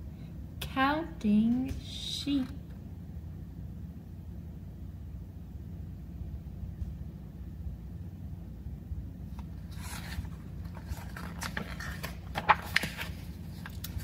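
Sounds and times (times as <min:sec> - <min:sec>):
low steady hum: 0:00.0 - 0:14.0
book pages turning: 0:09.3 - 0:14.0.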